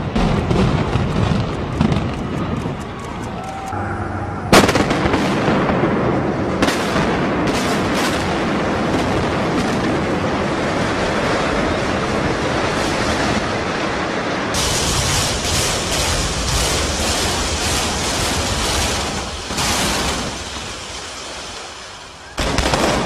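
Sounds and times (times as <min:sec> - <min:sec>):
demolition blast: 0:00.0 - 0:02.8, 0:03.8 - 0:21.5, 0:22.4 - 0:23.0
building collapsing rumble: 0:00.0 - 0:21.5
explosive cracks: 0:04.5 - 0:21.8, 0:22.4 - 0:23.0.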